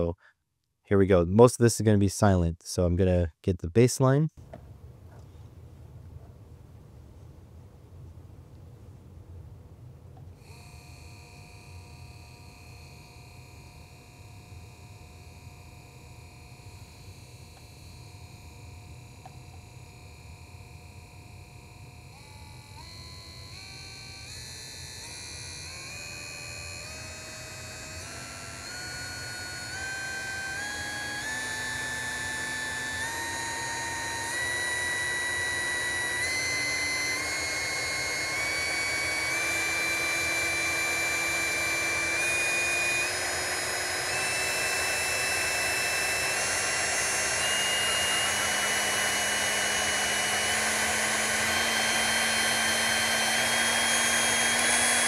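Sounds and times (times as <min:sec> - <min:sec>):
electric motor whine: 0:10.4 - 0:55.0
motor shaft rubbing in bushings: 0:26.7 - 0:55.0.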